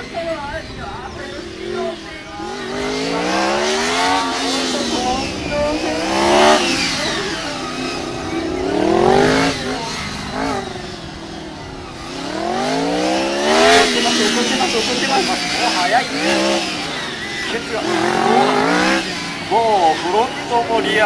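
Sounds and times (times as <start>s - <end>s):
motorcycle engine revving: 0.0s - 21.0s.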